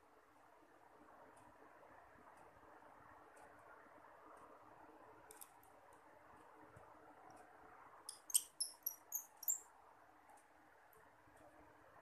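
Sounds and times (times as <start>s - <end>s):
high-pitched chirps: 8.1s - 9.6s.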